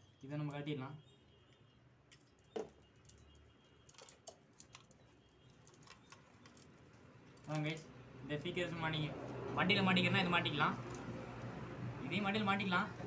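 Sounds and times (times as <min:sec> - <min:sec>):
clicks from twisting wires: 0:01.5 - 0:07.9.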